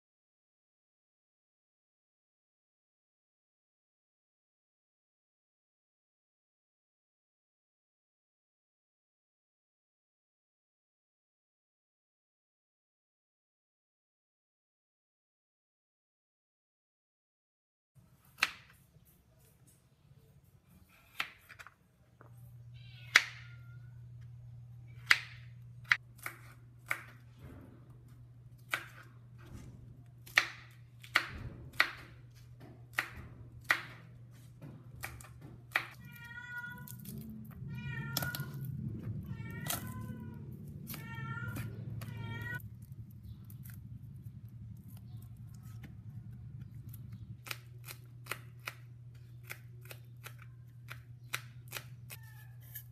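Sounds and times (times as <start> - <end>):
steady low hum: 37.0 - 52.0
knife cutting on plastic board: 46.8 - 52.9.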